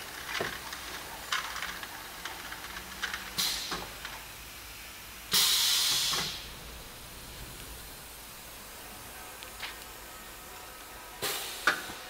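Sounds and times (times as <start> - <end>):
compressed air hissing: 3.4 - 3.8, 5.3 - 10.4, 11.2 - 12.0
pneumatic cylinder clacks: 5.3 - 6.4.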